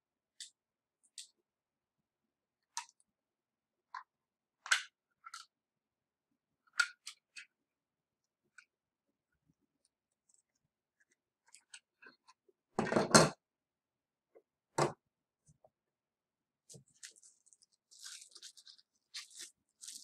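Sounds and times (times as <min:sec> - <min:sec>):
plastic parts clicking and knocking: 0:03.9 - 0:05.5, 0:11.5 - 0:13.4.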